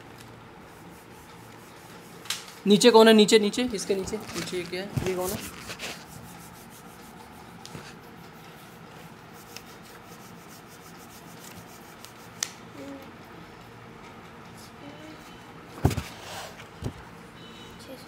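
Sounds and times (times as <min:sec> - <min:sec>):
hands rubbing paper pages: 0:00.2 - 0:02.6, 0:03.8 - 0:12.6.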